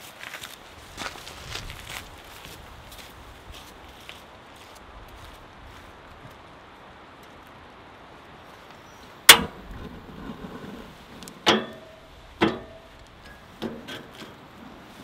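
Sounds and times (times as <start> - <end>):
sharp ringing knocks: 11.4 - 13.8.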